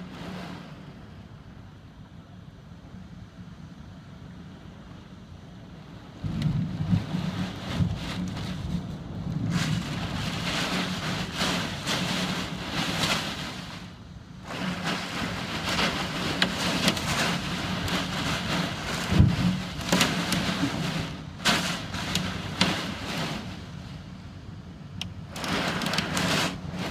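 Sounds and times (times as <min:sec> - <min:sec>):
rain: 0:00.0 - 0:02.3, 0:03.9 - 0:26.9
storm wind gusting: 0:06.1 - 0:26.9
wind buffeting microphone: 0:06.1 - 0:26.9.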